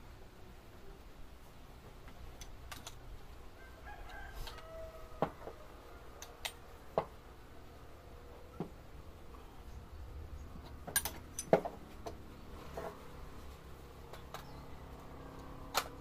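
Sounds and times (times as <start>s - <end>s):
rooster crowing: 3.5s - 6.3s.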